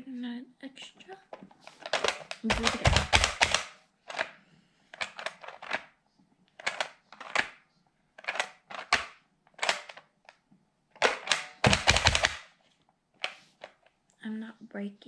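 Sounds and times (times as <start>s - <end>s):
plastic toy press clicking: 1.3s - 5.9s, 6.6s - 7.6s, 8.2s - 10.4s, 11.0s - 12.5s.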